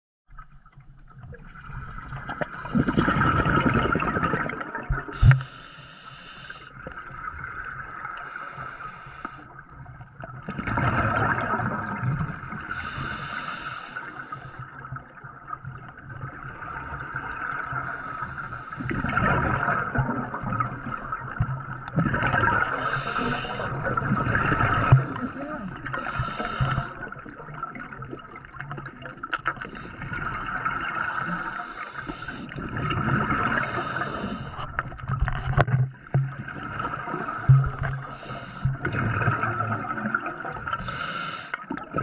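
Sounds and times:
exhaled bubbles underwater: 0:00.3 - 0:42.0
regulator hiss on inhale: 0:05.1 - 0:06.8, 0:08.2 - 0:09.6, 0:12.7 - 0:14.7, 0:17.8 - 0:19.0, 0:22.7 - 0:23.8, 0:25.1 - 0:27.0, 0:31.0 - 0:32.6, 0:33.6 - 0:34.7, 0:37.1 - 0:38.8, 0:40.8 - 0:41.6.

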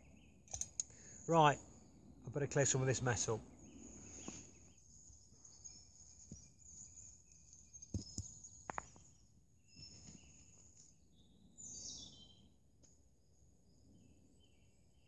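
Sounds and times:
faint distant birdsong: 0:00.0 - 0:15.0
knocks of sticks and stones: 0:07.9 - 0:09.1.

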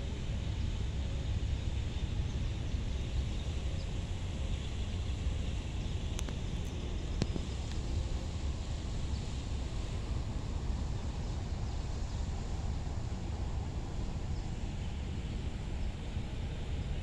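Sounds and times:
faint clicks: 0:06.1 - 0:06.4.

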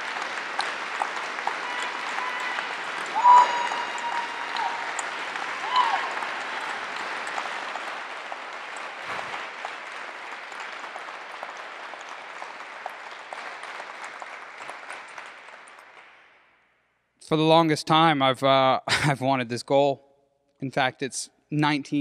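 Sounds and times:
audience applauding: 0:00.0 - 0:16.4.

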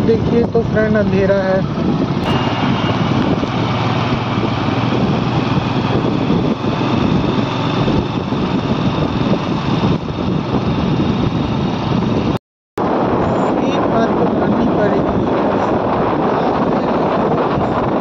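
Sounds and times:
motorcycle engine running: 0:00.0 - 0:12.4
road and air noise: 0:00.0 - 0:18.0.

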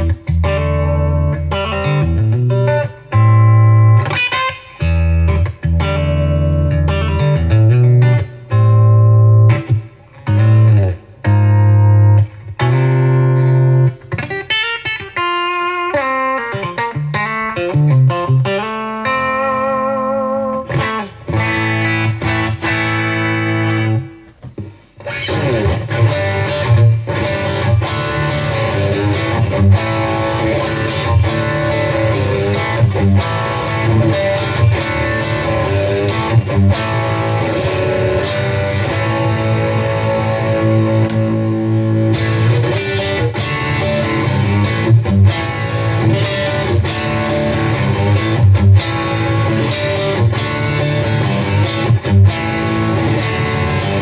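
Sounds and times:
electric guitar played with pick: 0:00.0 - 0:54.0.

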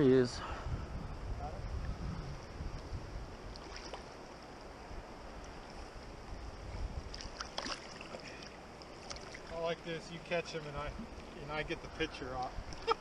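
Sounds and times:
wind rumble on microphone: 0:00.0 - 0:07.6, 0:10.7 - 0:13.0
stream water rushing: 0:03.2 - 0:13.0.

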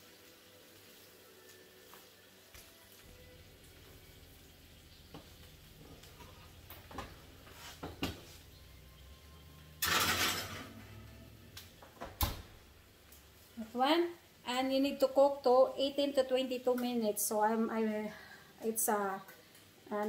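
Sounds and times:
metal knocks and clanks: 0:09.8 - 0:11.1
skillet scraping on oven rack: 0:09.8 - 0:11.2.

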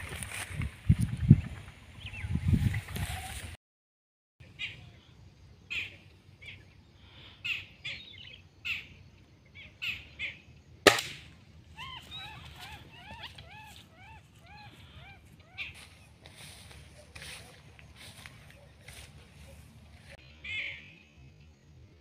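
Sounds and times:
low wind rumble on microphone: 0:00.0 - 0:03.6
small birds chirping: 0:04.4 - 0:10.8, 0:11.6 - 0:22.0
air rifle shot: 0:10.8 - 0:11.4.

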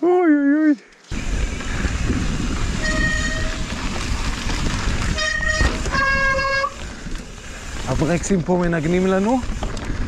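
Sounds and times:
bike rolling on dirt trail: 0:01.0 - 0:10.0
high-pitched brake squeals: 0:02.7 - 0:03.6.

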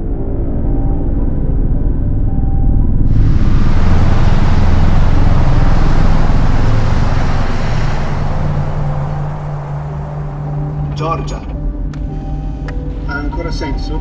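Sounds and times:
car road noise inside cabin: 0:03.1 - 0:11.9.

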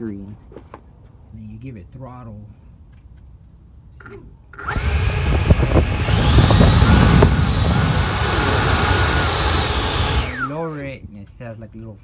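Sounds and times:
electric ducted fan whine: 0:04.6 - 0:10.8.

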